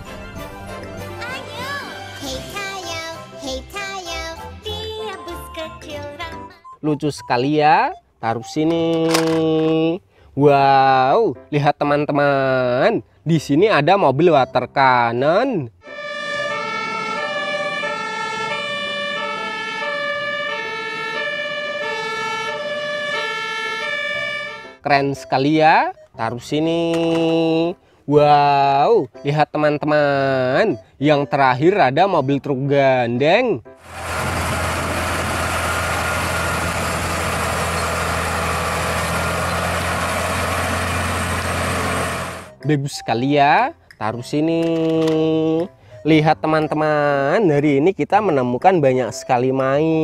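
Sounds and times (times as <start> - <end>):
electronic tone melody: 15.8 - 26.2
held high electronic tone: 15.9 - 24.7
truck diesel engine droning: 33.8 - 42.6.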